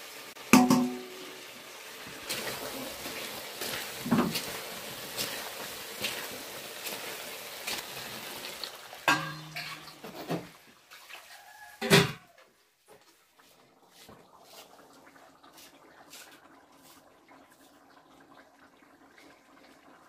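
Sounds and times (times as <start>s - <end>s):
chicken sizzling in a pan: 0.0s - 12.4s
metal spoon scraping a pan: 9.1s - 10.4s.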